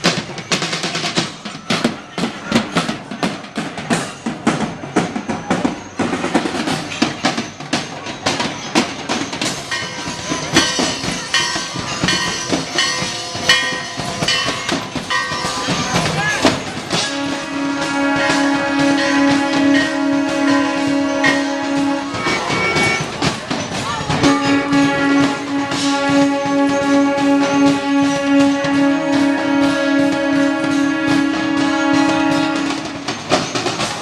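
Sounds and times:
drum kits and cymbals pounding: 0.0s - 34.0s
ringing tones: 18.8s - 28.7s.

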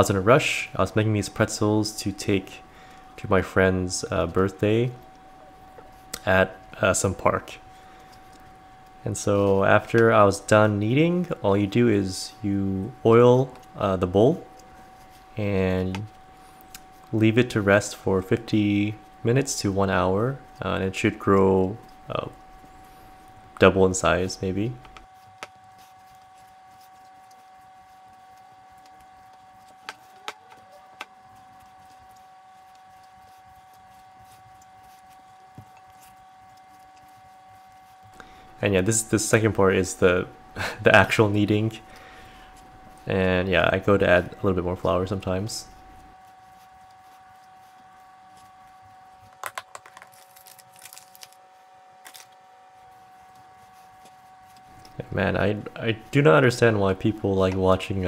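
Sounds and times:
faint steady hum: 0.0s - 58.0s
packet rustling: 49.3s - 51.4s, 52.0s - 52.4s.

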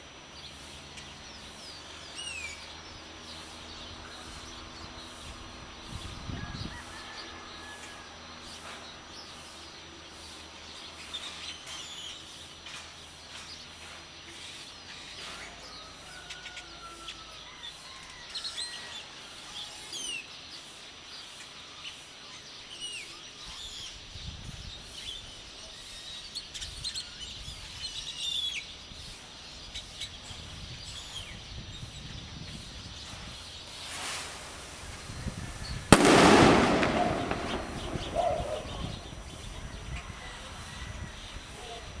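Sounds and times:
birds chirping and whistling: 0.0s - 7.6s, 8.5s - 42.0s
background town hiss: 0.0s - 42.0s
low rumbles: 34.4s - 39.5s.

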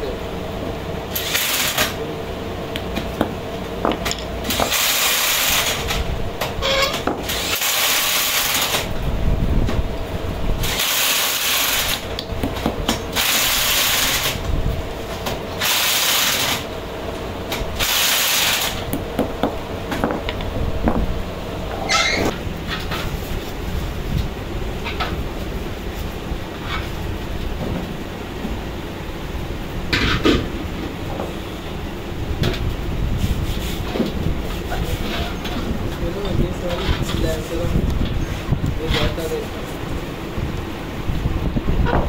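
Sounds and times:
steady machine hum: 0.0s - 42.0s
hiss bursts: 4.5s - 5.9s, 10.6s - 12.0s, 15.6s - 16.6s, 17.8s - 18.8s.

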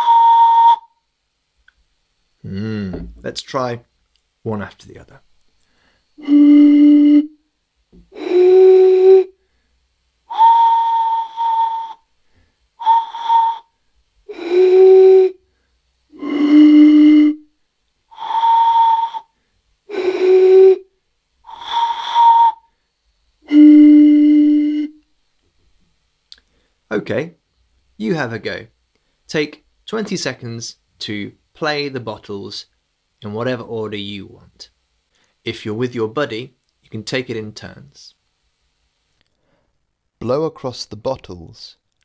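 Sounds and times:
blowing across bottles hooting: 0.0s - 1.0s, 5.7s - 7.4s, 8.0s - 9.5s, 10.2s - 22.8s, 23.4s - 25.0s.

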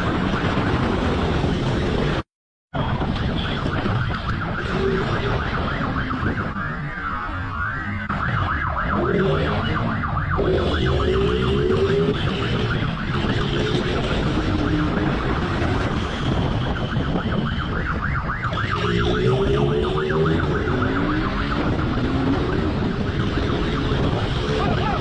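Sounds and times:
police siren warbling: 2.8s - 25.0s
motorcycle engine accelerating: 18.6s - 25.0s.

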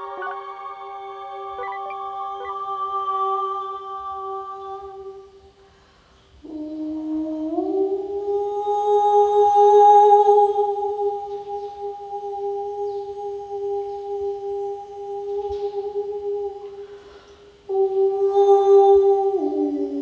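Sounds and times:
person humming: 6.4s - 16.8s, 17.7s - 20.0s.

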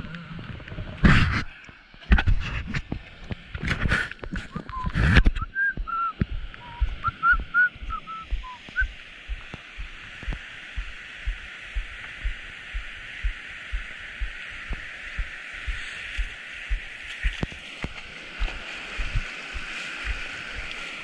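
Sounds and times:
whistled notes: 4.5s - 8.9s
breaking surf hiss: 7.5s - 21.0s.

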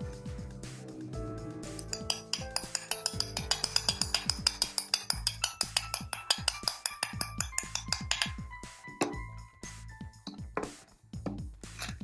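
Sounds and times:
background music with beat: 0.0s - 12.0s
hammer tapping metal: 1.7s - 8.4s.

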